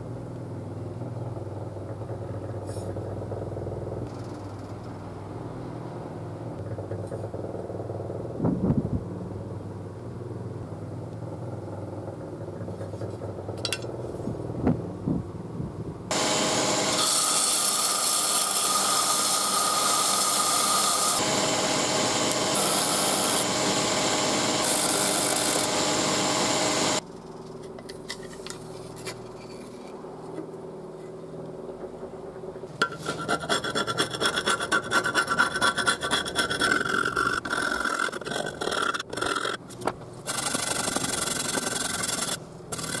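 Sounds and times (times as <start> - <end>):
belt grinder grinding steel: 16.1 - 27.0, 32.8 - 39.6, 40.2 - 43.0
abrasive scratching on blade: 32.8 - 43.0.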